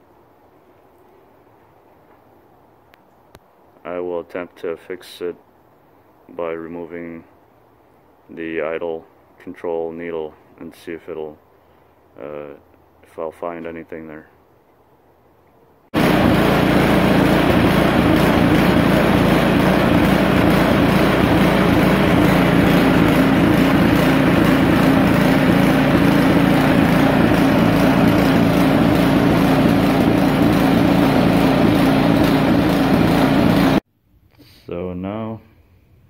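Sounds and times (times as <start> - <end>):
snowblower engine idling: 16.0 - 33.8.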